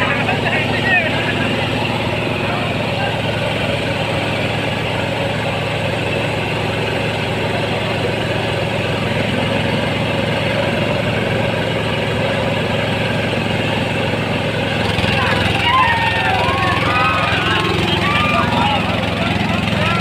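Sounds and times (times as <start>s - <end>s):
tractor diesel engine chugging: 0.0s - 20.0s.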